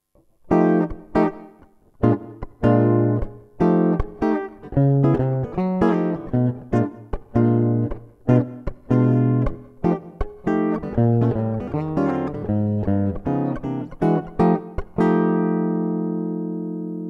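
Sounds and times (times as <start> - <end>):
electric guitar with reverb: 0.4 - 17.0.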